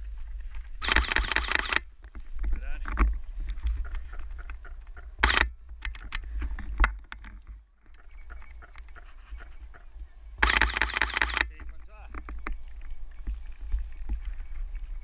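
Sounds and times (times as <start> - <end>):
wind noise on microphone: 0.0 - 15.0
sharp click: 5.2 - 5.5.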